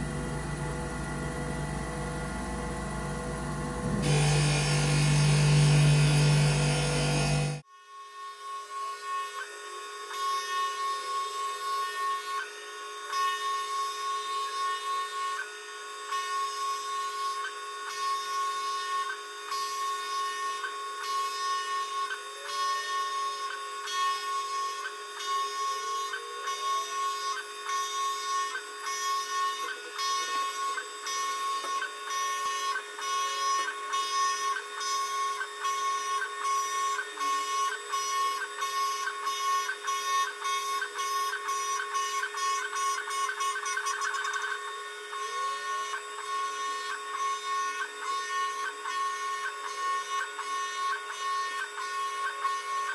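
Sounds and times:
lathe motors whining: 0.0 - 7.6
tool cutting workpiece rasp: 3.8 - 7.6, 8.4 - 52.9.

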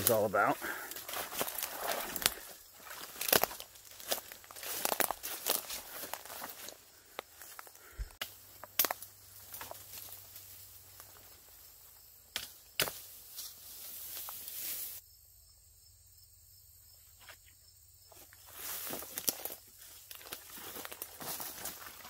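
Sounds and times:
footsteps through brush: 0.0 - 15.0, 17.1 - 22.0
leaves rustling: 0.0 - 15.0, 18.4 - 22.0
twig snaps: 8.1 - 9.7, 12.3 - 13.1.

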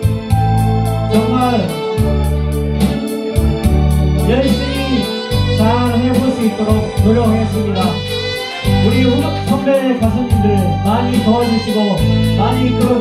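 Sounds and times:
drum machine beat with hi-hat: 0.0 - 11.2
electronic keyboard melody: 0.0 - 13.0
sustained bass: 0.0 - 13.0.

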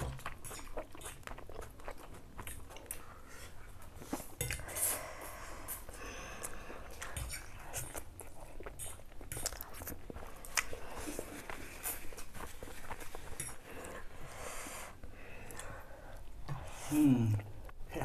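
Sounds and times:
wet mouth noises: 0.0 - 3.1
noodles slurped and chewed: 0.0 - 18.0.

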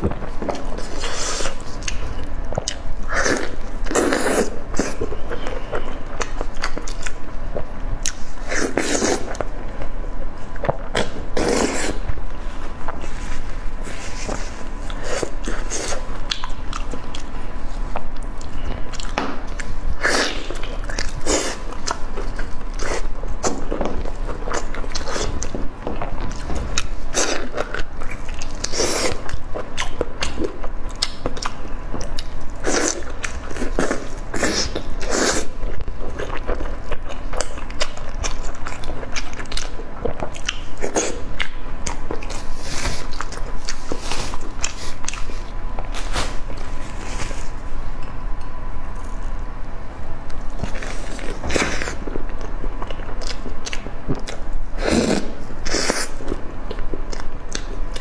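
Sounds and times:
biting and chewing: 14.0 - 49.4.

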